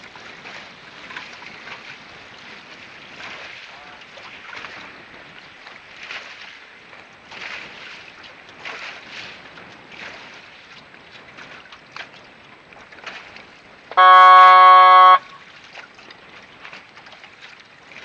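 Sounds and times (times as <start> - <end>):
boat moving over choppy water: 0.0 - 18.0
horn blast: 14.0 - 15.4.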